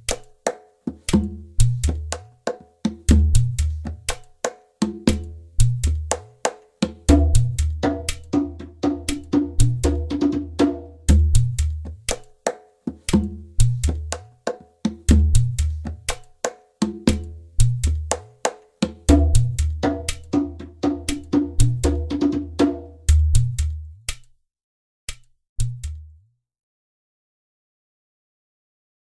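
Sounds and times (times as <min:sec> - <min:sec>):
wood-block clicks in rhythm: 0:00.0 - 0:24.4, 0:25.1 - 0:26.2.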